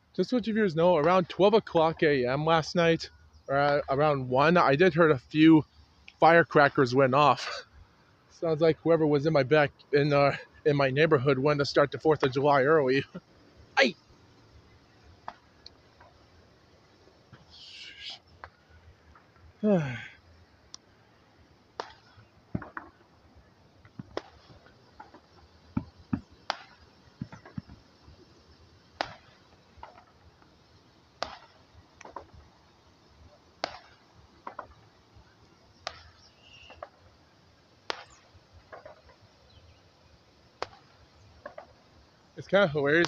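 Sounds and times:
distant firecrackers popping: 9.5 - 43.0.

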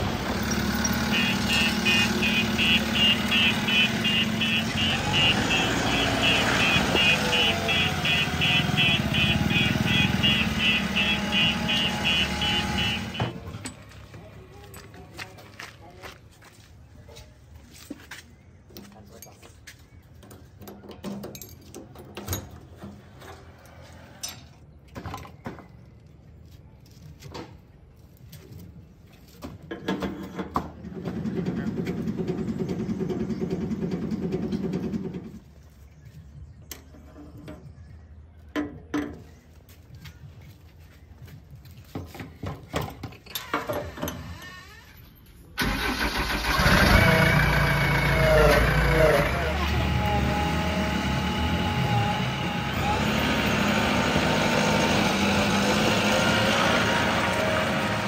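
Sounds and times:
diesel engine starting and running: 0.0 - 15.3, 30.6 - 35.6, 43.3 - 58.0.

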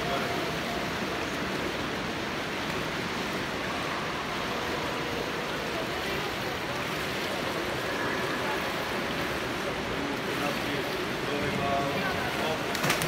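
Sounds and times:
swimmers splashing in pool: 7.0 - 13.0.

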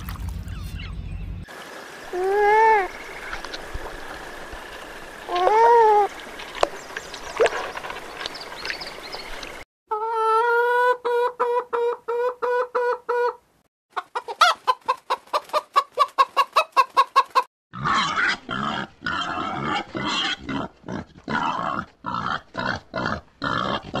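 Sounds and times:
hen clucking: 9.9 - 18.4
pig grunting: 17.7 - 24.0.

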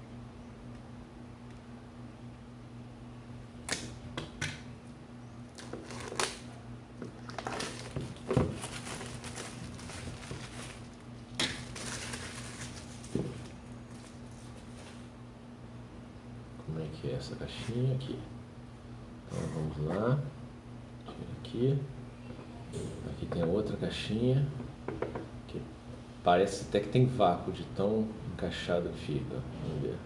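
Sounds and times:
faint low hum: 0.0 - 30.0
cardboard packaging clicks and crinkles: 5.5 - 15.0.

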